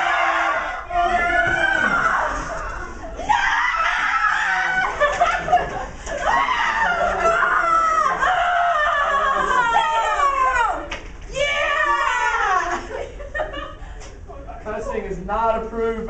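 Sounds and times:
young people shrieking and yelling: 0.0s - 13.6s
laughter: 4.7s - 6.3s, 12.6s - 14.2s.

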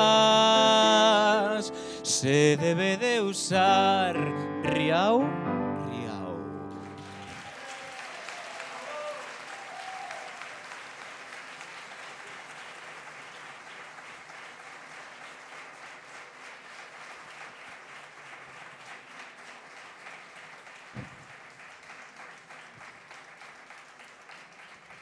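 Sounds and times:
audience applauding: 6.7s - 25.0s.

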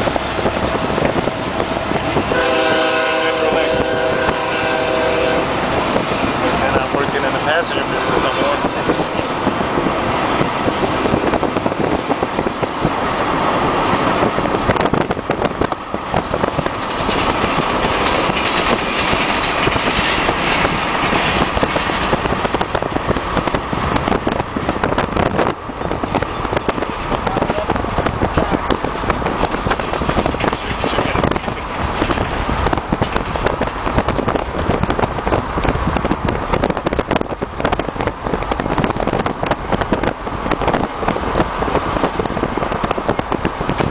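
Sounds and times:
freight train passing: 0.0s - 43.9s
road noise: 0.0s - 43.9s
wind buffeting microphone: 0.0s - 43.9s.

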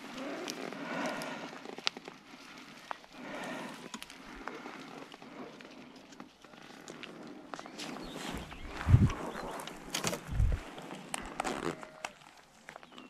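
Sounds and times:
soft rustling in grass: 4.4s - 11.4s.

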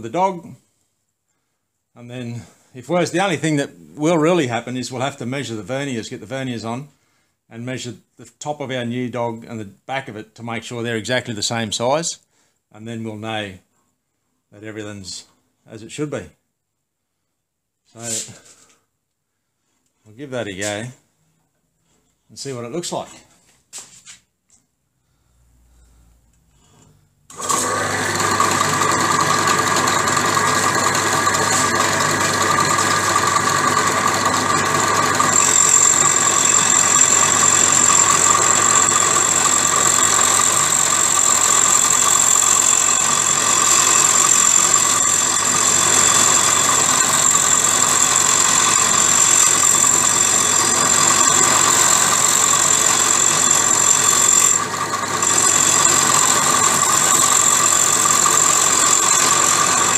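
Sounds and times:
drill press running: 27.3s - 59.9s.

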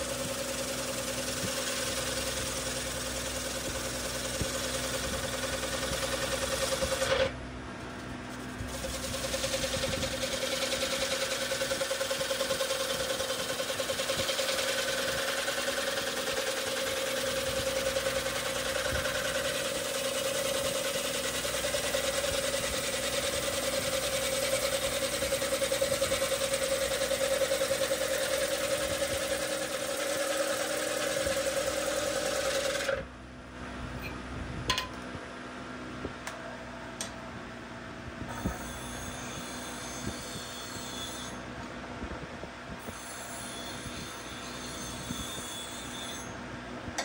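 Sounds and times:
lathe machine tone: 8.4s - 33.0s
gouge hissing on spinning wood: 8.7s - 32.9s.

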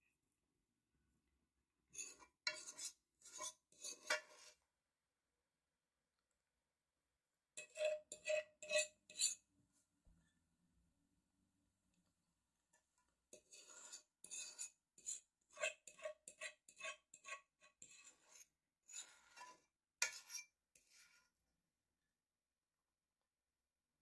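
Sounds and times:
utensil scraping a dish: 2.0s - 4.6s, 7.6s - 9.4s, 13.3s - 21.4s.

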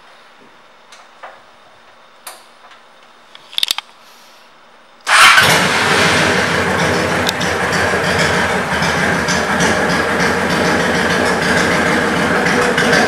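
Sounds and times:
motorcycle engine starting and idling: 5.0s - 13.0s.

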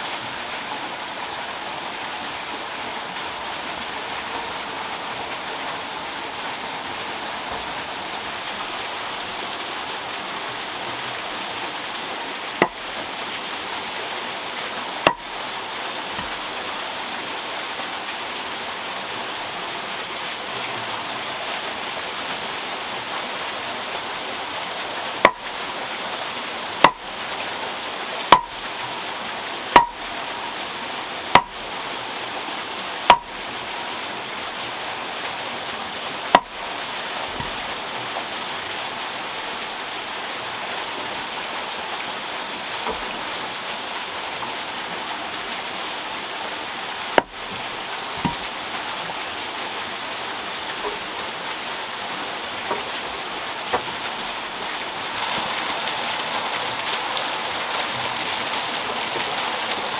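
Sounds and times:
water pouring over waterwheel: 0.0s - 59.9s
mallet knocking wooden stake: 12.6s - 12.8s, 15.0s - 15.3s, 25.2s - 25.4s, 26.8s - 27.0s, 28.3s - 28.6s, 29.7s - 30.0s, 31.3s - 31.6s, 33.1s - 33.3s, 36.3s - 36.5s, 47.2s - 47.4s, 48.2s - 48.5s.

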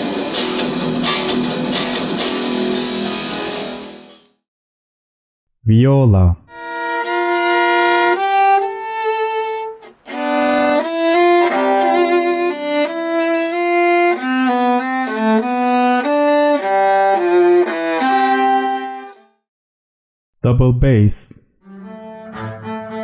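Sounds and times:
solo viola bowed: 6.5s - 19.2s, 21.6s - 23.0s.

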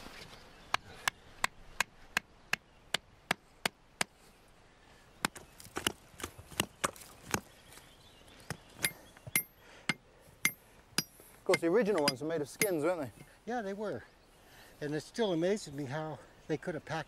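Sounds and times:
stake being hammered into ground: 0.7s - 4.2s, 5.2s - 7.5s, 8.8s - 12.8s.

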